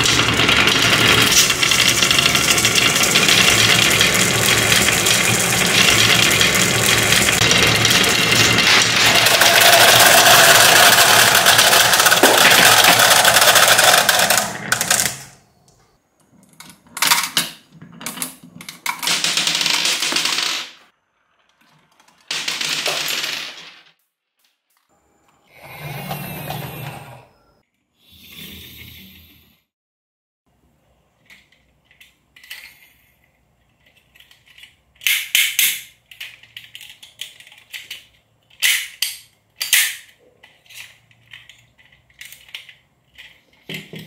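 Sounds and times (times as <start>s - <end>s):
marbles rolling on wooden track: 0.0s - 15.4s, 17.8s - 24.0s.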